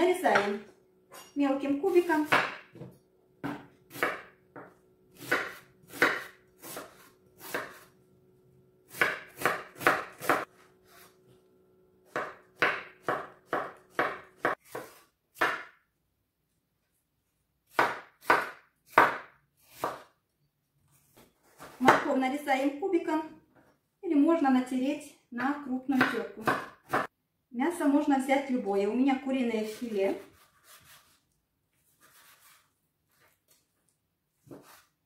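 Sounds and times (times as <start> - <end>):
knife chopping on wooden board: 2.2 - 7.9, 8.9 - 10.5, 12.1 - 15.8, 17.7 - 20.1, 25.9 - 27.1, 34.4 - 34.9.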